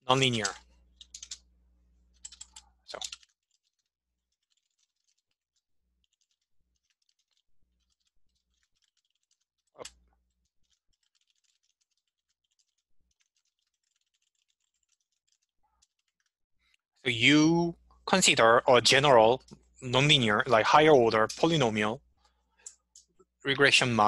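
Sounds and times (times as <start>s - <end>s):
keyboard typing: 0.1s - 1.5s, 2.1s - 16.3s.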